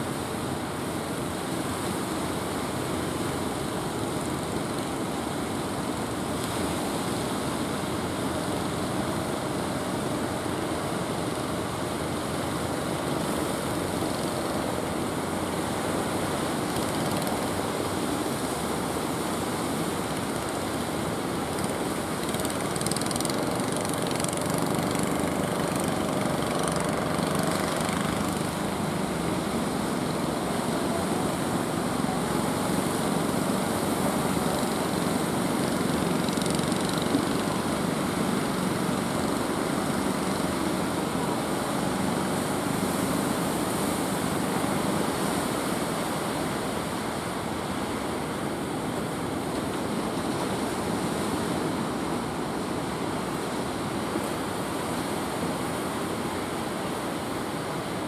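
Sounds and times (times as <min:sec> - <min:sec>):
boat engine running: 0:19.3 - 0:45.5.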